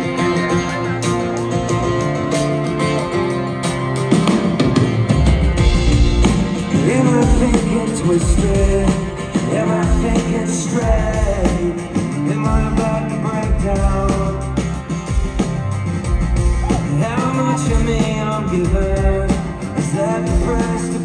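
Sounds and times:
acoustic guitar strumming: 0.0 - 21.0
rock band with deep bass: 0.0 - 21.0
man singing: 6.5 - 14.9, 16.7 - 21.0.

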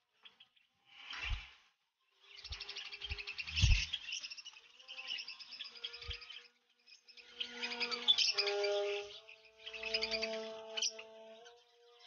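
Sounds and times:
budgerigars chattering: 2.2 - 11.6.

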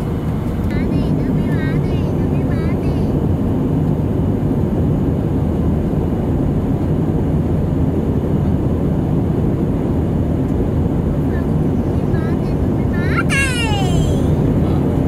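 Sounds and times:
airplane cabin engine noise: 0.0 - 15.0.

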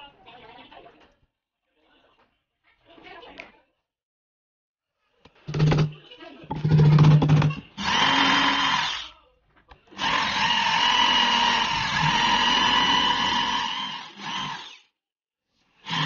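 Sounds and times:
electric drill whining: 5.5 - 5.9, 6.5 - 9.0, 10.0 - 14.9.

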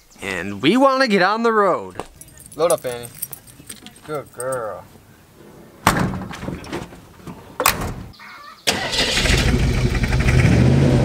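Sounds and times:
truck door thumping shut: 5.8 - 7.0, 7.6 - 8.1
truck engine starting and running: 5.9 - 11.0.

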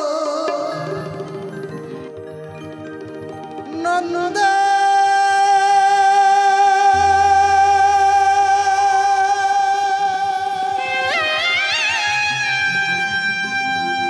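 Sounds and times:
person singing devotional song: 3.6 - 12.4.

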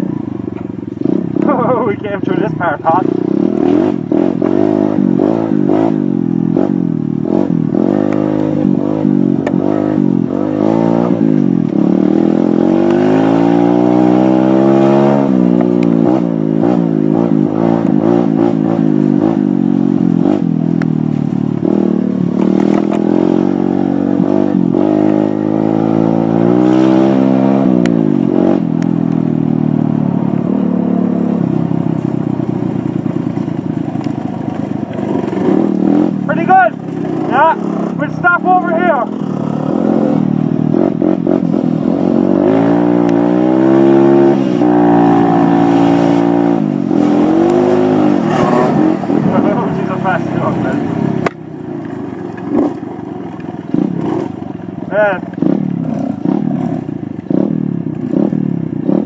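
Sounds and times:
dirt bike engine revving: 0.0 - 59.0
knocks and rattles over bumps: 31.9 - 38.2.

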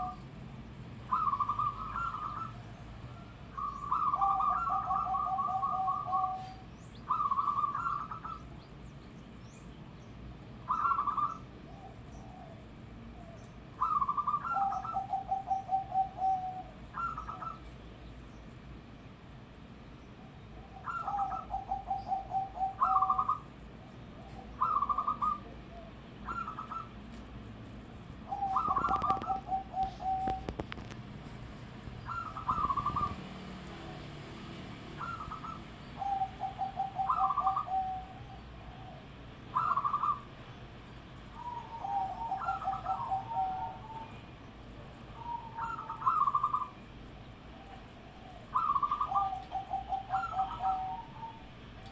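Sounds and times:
dove cooing: 0.0 - 0.2, 1.1 - 8.5, 10.7 - 17.7, 20.6 - 27.0, 28.2 - 31.0, 32.0 - 40.3, 41.3 - 44.2, 45.1 - 46.8, 47.5 - 51.9.

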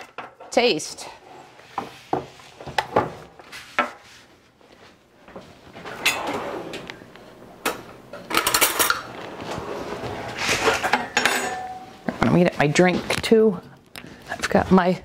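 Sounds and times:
kitchen drawer opened and shut: 5.3 - 11.7.

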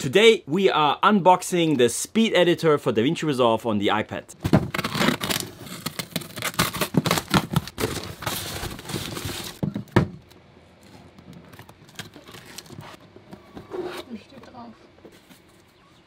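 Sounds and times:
parcel wrapping crinkling and tearing: 4.7 - 9.6, 11.5 - 13.0.

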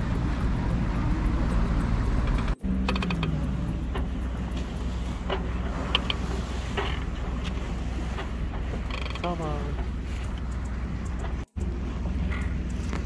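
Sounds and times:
boat engine drone: 0.0 - 13.0
wind and water noise: 0.0 - 13.0
light clicks or creaks: 2.2 - 7.6, 8.2 - 11.7.

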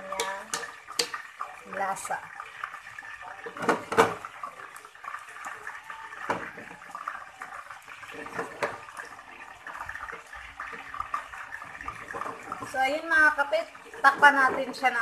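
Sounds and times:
spatula knocking against pan: 0.0 - 1.2.

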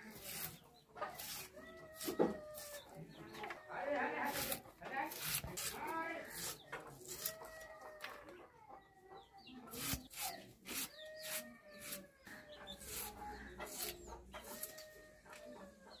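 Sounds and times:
chickens clucking: 0.0 - 16.0
onion being sliced on blade: 4.2 - 7.4, 9.7 - 12.0, 12.8 - 14.8.

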